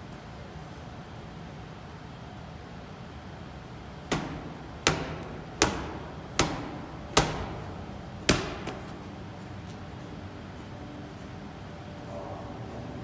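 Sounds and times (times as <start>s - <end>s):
medicine ball slapping against wall: 4.1s - 9.1s.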